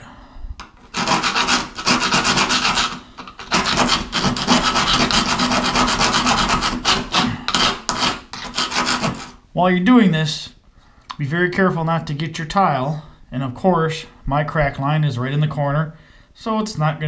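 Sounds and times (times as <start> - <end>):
grout saw rasping: 0.6 - 9.4.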